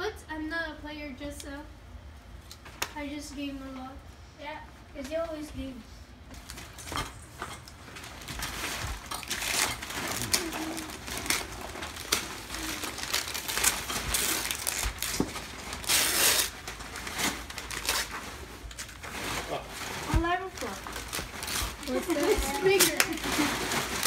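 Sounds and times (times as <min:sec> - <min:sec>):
wrapping paper tearing: 0:07.7 - 0:24.0
tissue paper rustling: 0:07.8 - 0:24.0.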